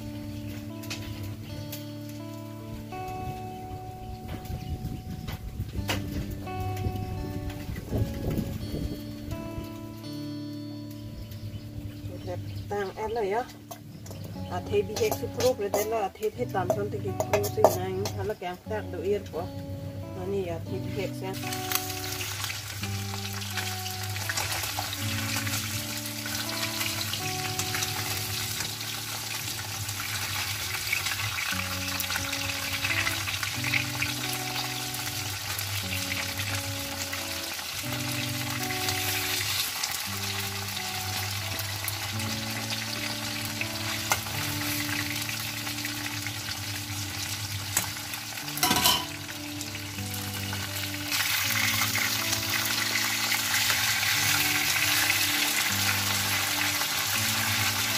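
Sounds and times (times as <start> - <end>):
fish sizzling in oil: 0.0 - 4.7, 5.7 - 18.7, 20.7 - 57.9
soft background music: 0.0 - 57.9
utensil clattering on pan: 14.9 - 16.1, 16.7 - 18.2, 48.6 - 49.2.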